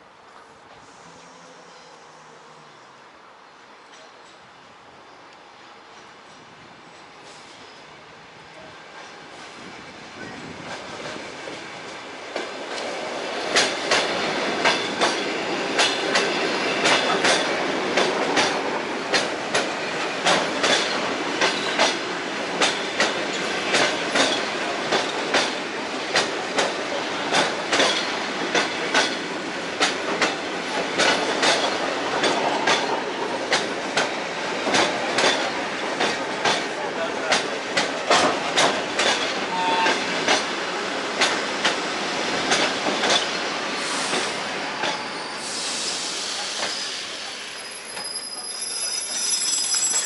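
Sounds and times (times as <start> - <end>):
train rumble: 8.2 - 47.3.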